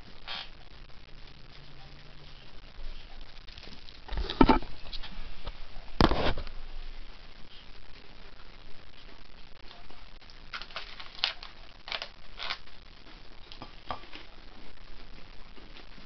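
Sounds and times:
crisp crackles of crust: 0:09.6 - 0:14.8.

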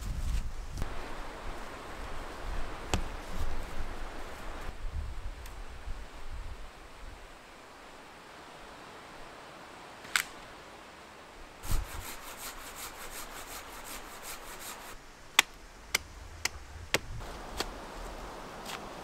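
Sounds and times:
hand saw cutting a branch: 0:11.6 - 0:15.0.

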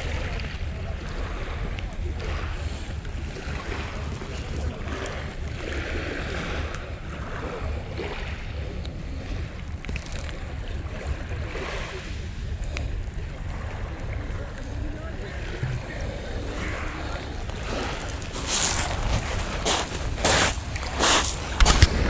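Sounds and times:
wind buffeting microphone: 0:00.0 - 0:22.0
small waves on pebble beach: 0:16.3 - 0:22.0.

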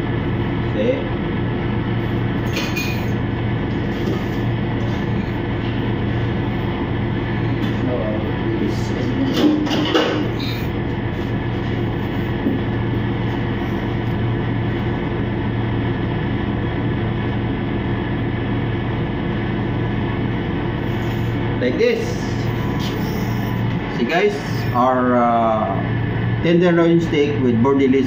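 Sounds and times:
kitchen machine hum: 0:00.0 - 0:28.0
clinks of utensils: 0:02.5 - 0:03.1.

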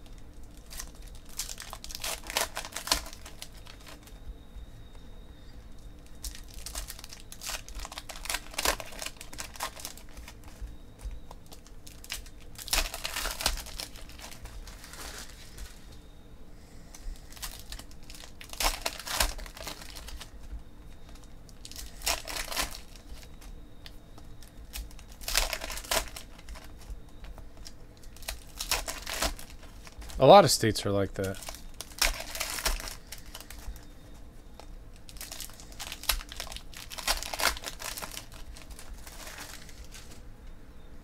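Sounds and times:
foil packs tearing and crinkling: 0:00.0 - 0:04.2, 0:05.9 - 0:16.0, 0:16.9 - 0:30.6, 0:31.2 - 0:40.2
cards ticking: 0:00.3 - 0:04.2, 0:16.9 - 0:40.2.

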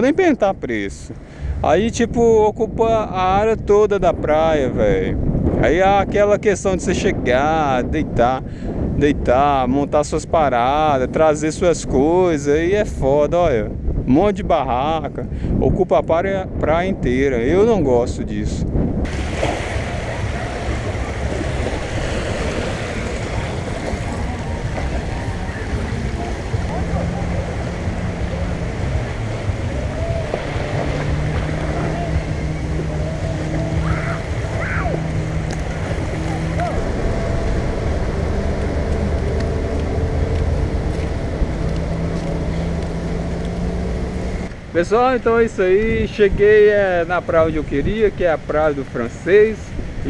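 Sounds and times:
wind buffeting microphone: 0:00.0 - 0:50.0
vehicle engine running: 0:19.1 - 0:44.7
small waves lapping at shore: 0:19.1 - 0:45.4.

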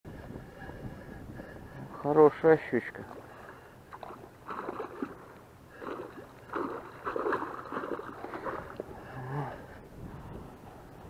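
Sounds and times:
fish splashing at surface: 0:03.9 - 0:08.8.

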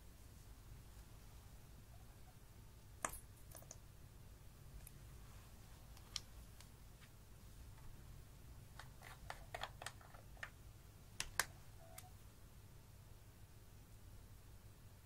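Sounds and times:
plastic makeup compacts clicking: 0:08.8 - 0:10.6.

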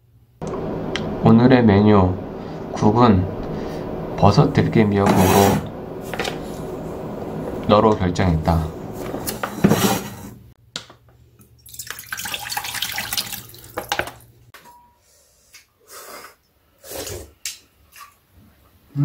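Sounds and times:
low hum: 0:00.4 - 0:10.5
soup pouring into a pot: 0:11.6 - 0:14.2.

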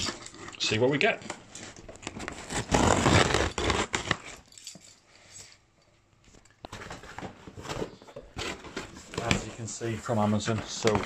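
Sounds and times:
packing tape scraping and tearing: 0:00.0 - 0:00.7, 0:01.5 - 0:04.5.

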